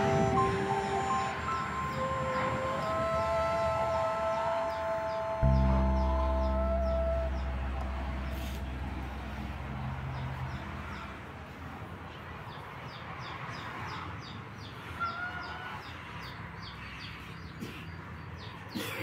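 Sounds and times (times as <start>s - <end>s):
farmyard background noise: 4.3s - 19.0s.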